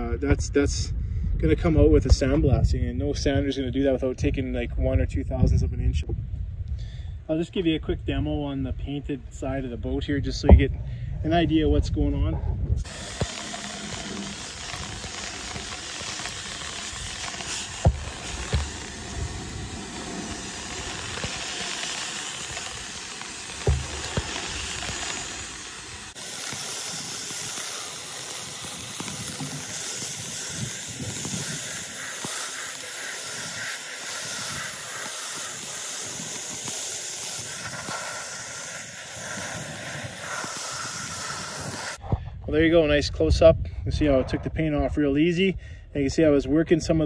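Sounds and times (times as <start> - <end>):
sandblaster hissing: 12.8 - 42.0.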